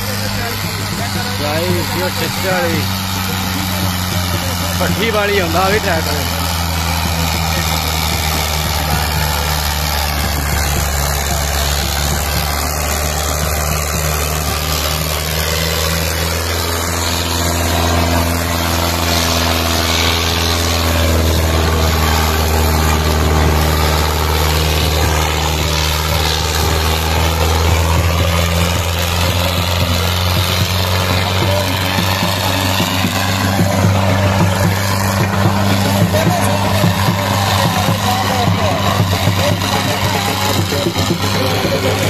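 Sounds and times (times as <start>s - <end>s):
tractor diesel engine droning: 0.0s - 42.0s.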